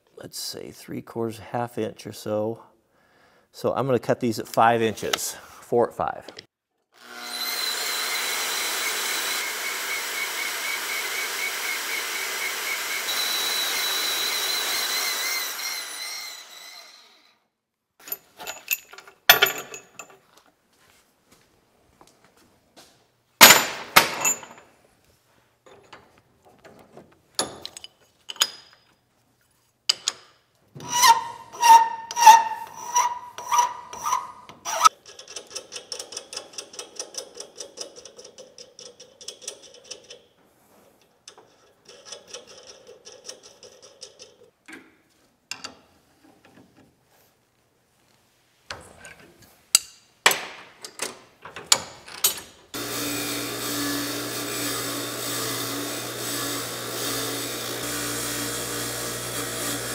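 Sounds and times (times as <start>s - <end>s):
nut rattling along threaded rod: 32.1s - 40.3s, 41.3s - 44.5s.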